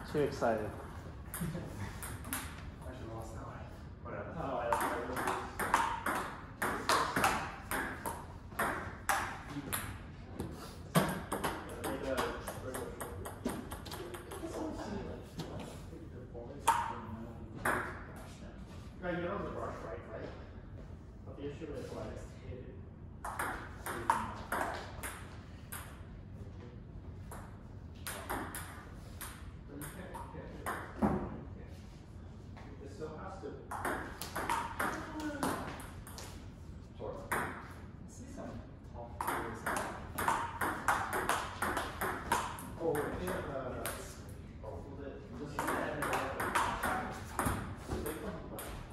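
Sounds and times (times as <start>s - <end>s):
table tennis ball hits: 1.3s - 2.6s, 4.7s - 10.0s, 10.9s - 14.6s, 16.6s - 17.0s, 23.2s - 26.0s, 27.4s - 31.3s, 33.7s - 36.4s, 39.2s - 44.0s, 45.6s - 48.8s
ping-pong ball clicks: 4.7s - 10.0s, 39.2s - 44.0s.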